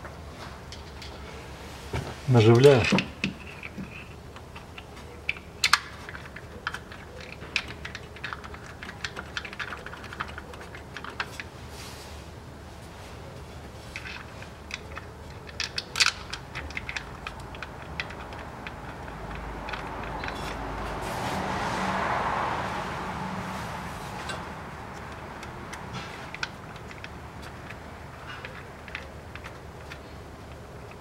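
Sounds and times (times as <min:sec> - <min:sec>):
broad rushing noise: 0:20.5 - 0:26.3.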